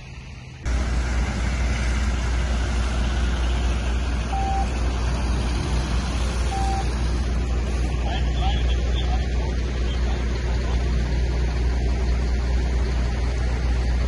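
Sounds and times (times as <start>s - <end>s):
truck diesel engine rumbling: 0.0s - 14.0s
short beep: 4.3s - 4.7s, 6.5s - 6.9s.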